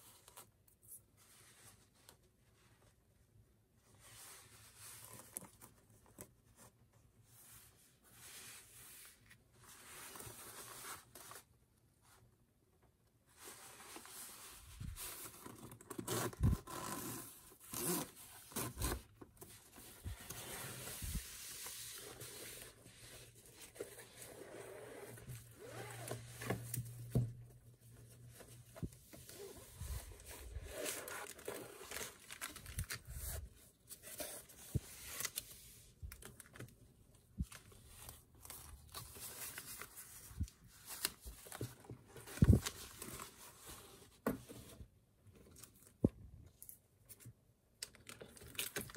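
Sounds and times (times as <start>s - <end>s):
plastic sleeves rustling: 13.3s - 48.9s
zipper rasping: 24.4s - 26.2s.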